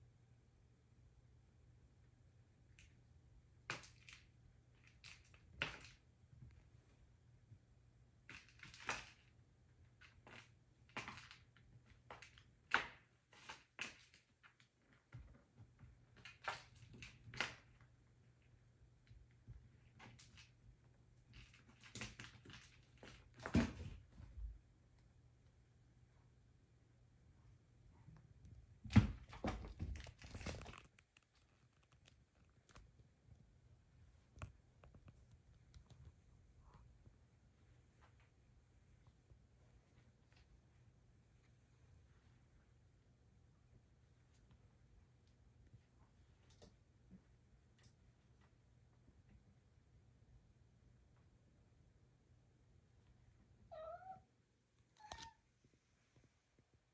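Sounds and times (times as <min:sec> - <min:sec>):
cat pawing and scratching: 0:08.2 - 0:24.6, 0:28.2 - 0:33.4.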